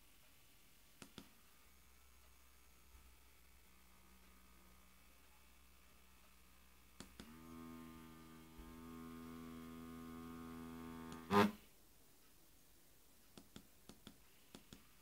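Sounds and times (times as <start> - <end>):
small electric motor humming: 7.2 - 11.6.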